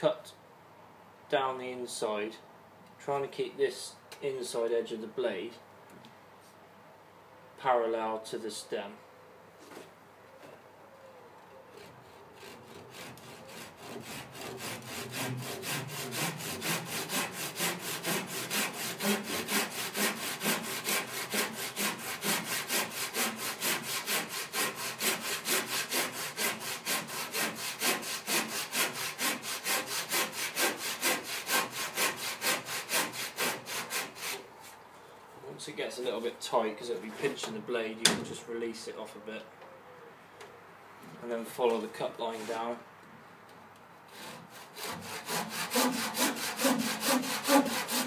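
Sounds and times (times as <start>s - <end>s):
hand saw cutting wood: 11.8s - 34.4s, 44.1s - 48.0s.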